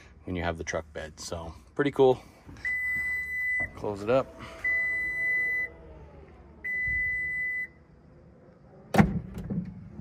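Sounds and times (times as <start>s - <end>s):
warning beeps: 2.6s - 7.8s
faint motor hum: 2.7s - 8.9s.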